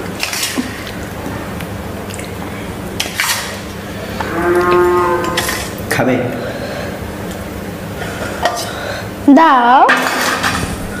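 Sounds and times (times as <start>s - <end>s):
spoon scraping steel bowl: 5.2s - 5.7s.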